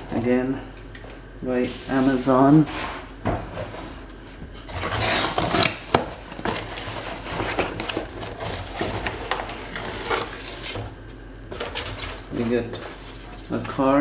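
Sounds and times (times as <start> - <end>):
cardboard scraping and rubbing: 4.7 - 10.9, 11.5 - 13.9.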